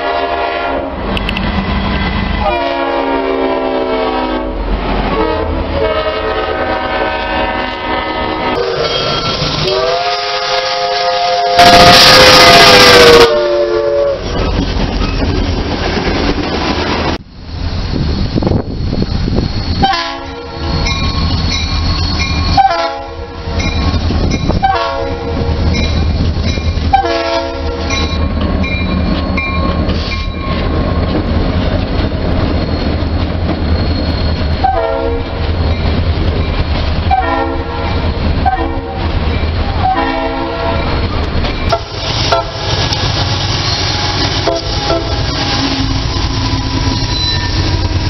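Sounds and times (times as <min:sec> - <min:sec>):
locomotive horn blasts: 0:00.0 - 0:01.0, 0:02.4 - 0:14.4, 0:19.8 - 0:20.7, 0:22.5 - 0:23.6, 0:24.5 - 0:25.5, 0:26.9 - 0:28.2, 0:34.6 - 0:35.3, 0:37.1 - 0:39.0, 0:39.8 - 0:40.9, 0:41.7 - 0:42.8, 0:44.0 - 0:47.4
train rumble and wheel clatter: 0:00.0 - 0:48.0.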